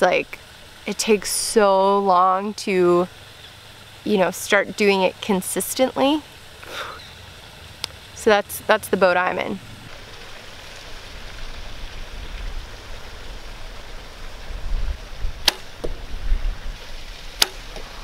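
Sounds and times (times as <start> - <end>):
steady hiss and low rumble: 0.0 - 18.0
bowstring snap: 15.4 - 15.9, 17.4 - 17.6.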